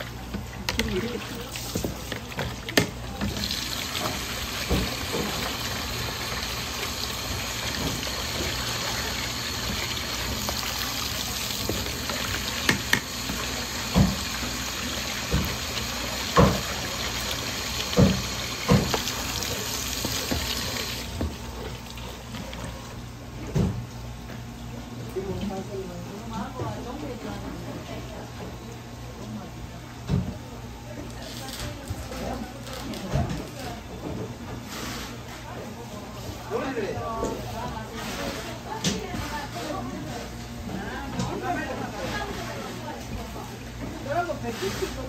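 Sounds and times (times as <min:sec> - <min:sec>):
tap water running into basin: 0:00.0 - 0:23.0.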